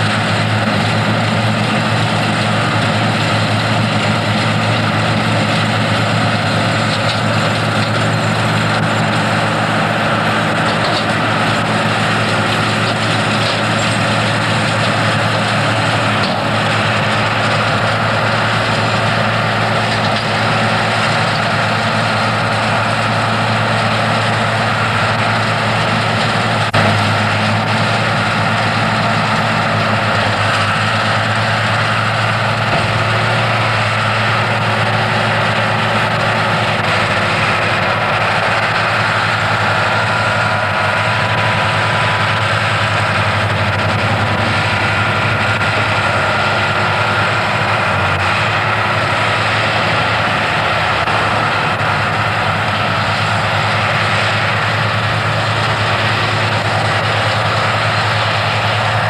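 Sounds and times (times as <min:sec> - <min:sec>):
tractor engines droning: 0:00.0 - 0:59.0.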